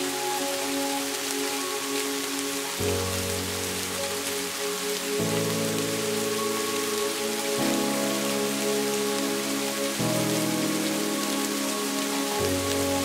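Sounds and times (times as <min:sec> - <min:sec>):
steady rain falling: 0:00.0 - 0:13.0.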